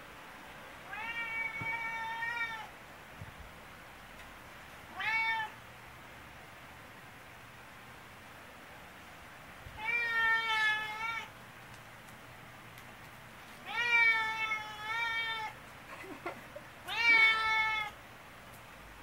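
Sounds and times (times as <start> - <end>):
cat meowing loudly: 0.8 - 2.7, 4.9 - 5.6, 9.8 - 11.3, 13.6 - 15.6, 16.9 - 18.0
cat chirp: 16.9 - 17.9.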